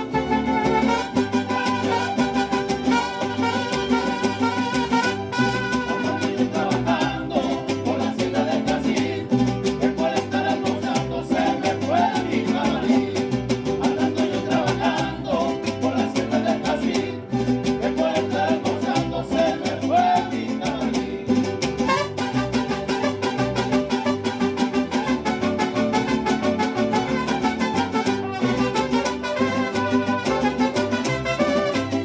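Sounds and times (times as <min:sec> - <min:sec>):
violins playing melody: 0:00.0 - 0:05.8
plucked bass guitar: 0:00.0 - 0:32.0
strummed guitar: 0:00.0 - 0:32.0.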